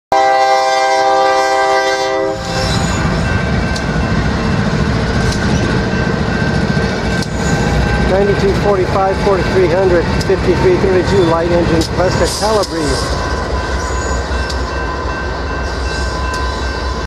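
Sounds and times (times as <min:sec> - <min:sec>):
locomotive air horn chord: 0:00.1 - 0:02.8
locomotives rumbling past: 0:02.4 - 0:17.0.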